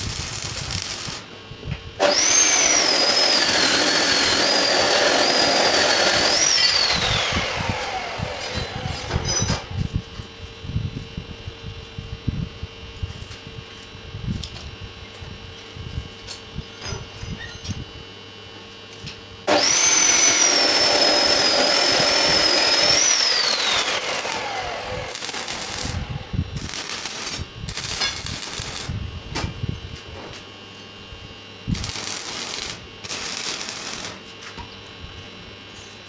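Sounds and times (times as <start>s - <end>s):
angle grinder whining: 0.0s - 1.3s, 2.0s - 9.7s, 19.5s - 29.0s, 31.7s - 34.2s
arc welding crackling: 0.0s - 1.3s, 19.5s - 29.0s, 31.7s - 34.4s.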